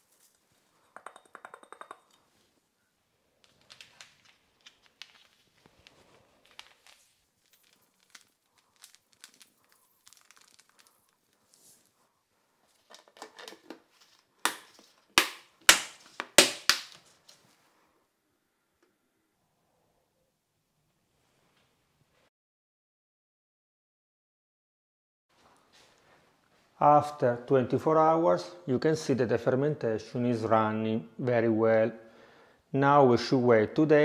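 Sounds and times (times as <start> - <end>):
sachet crinkling and tearing: 3.6 - 11.5.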